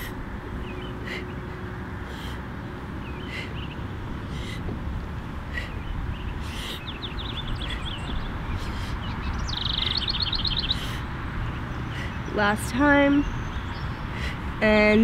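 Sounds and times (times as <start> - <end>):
forceful breaths through mouth: 0.0 - 12.3, 13.8 - 14.6
birds chirping: 0.0 - 15.0
bird trilling: 5.5 - 12.3.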